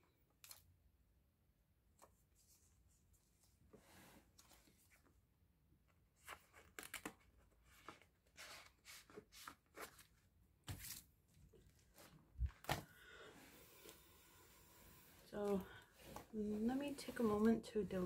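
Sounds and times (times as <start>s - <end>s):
plastic sleeves rustling: 6.2s - 18.0s.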